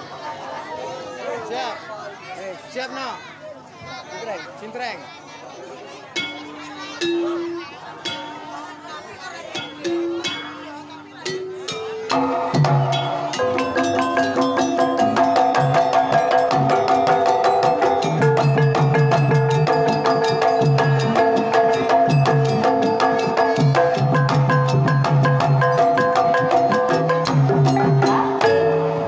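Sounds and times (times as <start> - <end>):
metallophones struck with mallets: 6.1 - 29.0
hand drum beating quickly: 11.2 - 28.8.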